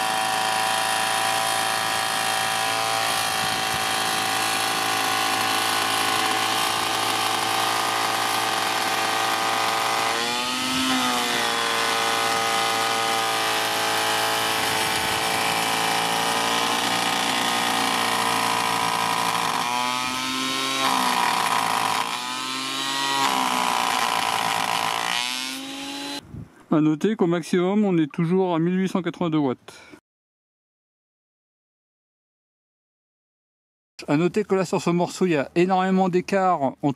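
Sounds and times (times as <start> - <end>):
planer whining while planing wood: 0.0 - 26.2.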